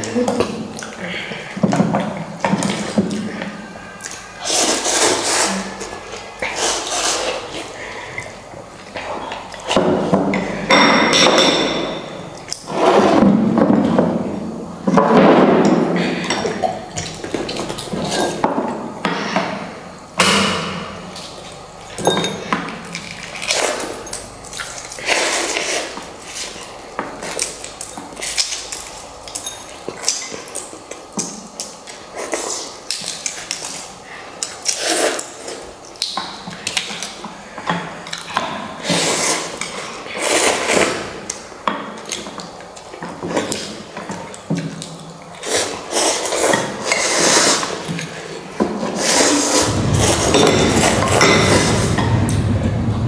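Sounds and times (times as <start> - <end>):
noisy slurping of noodles: 4.4 - 7.8, 38.8 - 41.2, 45.4 - 49.7.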